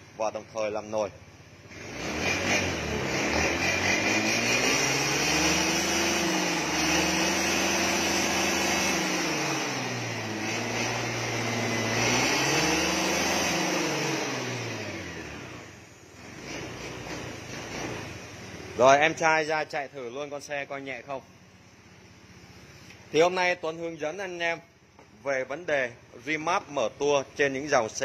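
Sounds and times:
scooter engine revving: 1.5 - 18.8.

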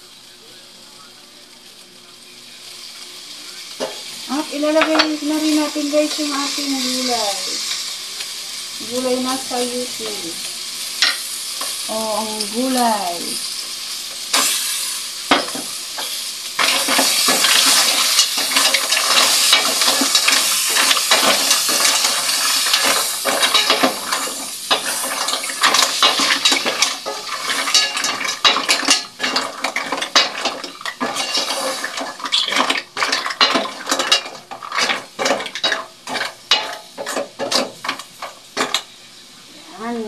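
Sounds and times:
sizzling: 0.0 - 40.0
mussel shells clacking in a pot: 15.3 - 38.9.

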